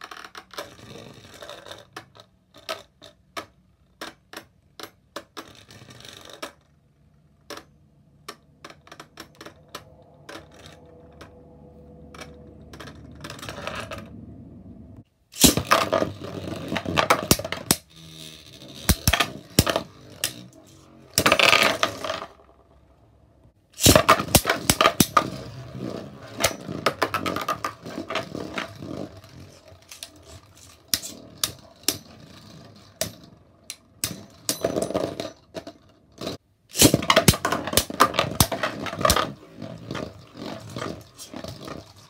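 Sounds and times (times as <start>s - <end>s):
spinning tops clicking and knocking: 15.4s - 22.4s, 23.8s - 42.0s.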